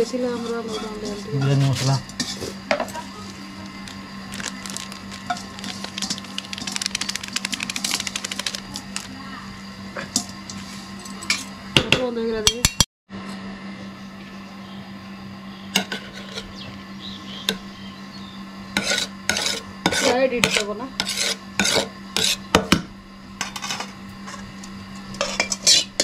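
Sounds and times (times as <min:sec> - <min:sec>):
metal spoon scraping a pot: 0:00.1 - 0:02.6, 0:15.8 - 0:16.6, 0:18.8 - 0:22.5, 0:23.4 - 0:26.0.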